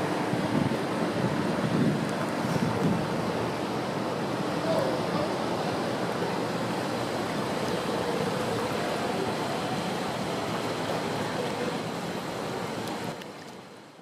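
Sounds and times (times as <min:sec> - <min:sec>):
water rushing and churning: 0:00.0 - 0:14.0.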